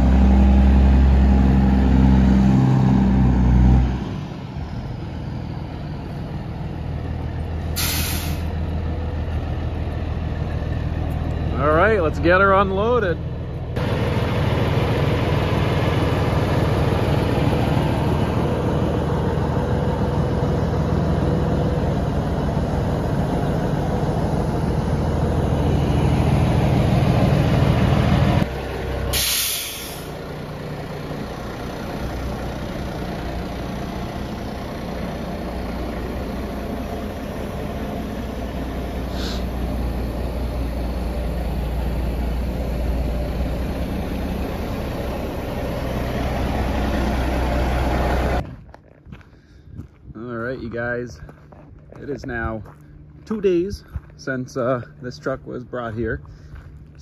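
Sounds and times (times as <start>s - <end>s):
truck diesel engine running: 0.0s - 57.0s
air brakes hissing: 7.7s - 8.6s, 29.1s - 30.2s, 39.0s - 39.6s.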